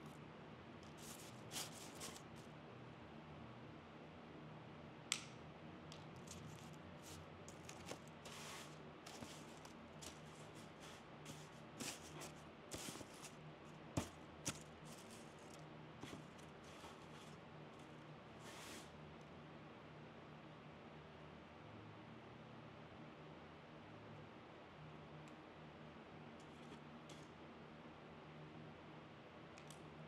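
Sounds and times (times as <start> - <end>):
rustling of cut greens: 1.0 - 2.4.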